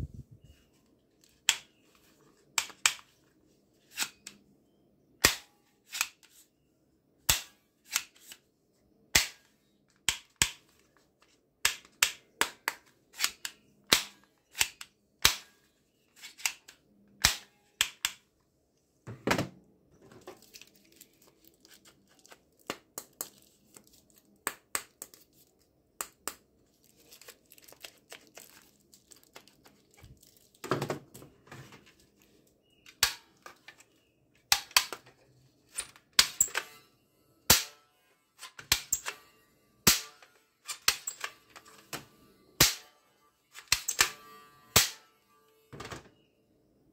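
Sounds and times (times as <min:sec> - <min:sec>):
toy gun plastic clicks: 0:11.6 - 0:15.4.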